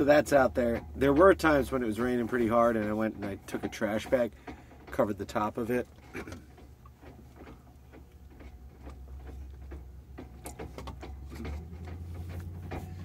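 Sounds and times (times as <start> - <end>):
light clicks and knocks: 0.0 - 13.0
low mechanical hum: 0.0 - 13.0.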